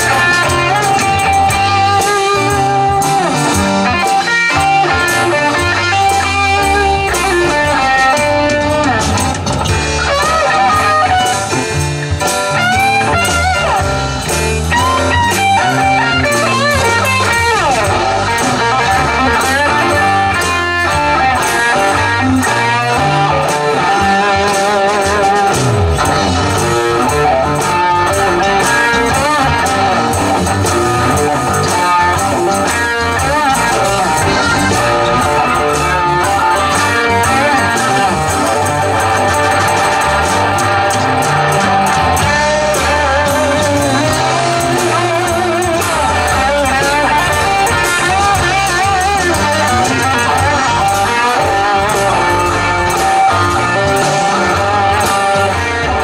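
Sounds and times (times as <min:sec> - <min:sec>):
electric lead guitar: 0:00.0 - 0:56.0
rock band playing: 0:00.0 - 0:56.0.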